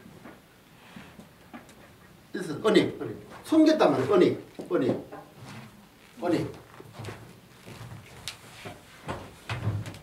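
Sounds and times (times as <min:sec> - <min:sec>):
light footsteps: 0:03.2 - 0:10.0.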